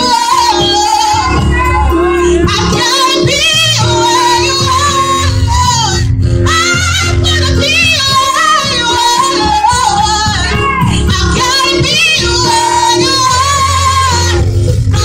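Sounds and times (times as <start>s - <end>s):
held keyboard chords: 0.0s - 15.0s
woman singing gospel solo: 0.0s - 15.0s.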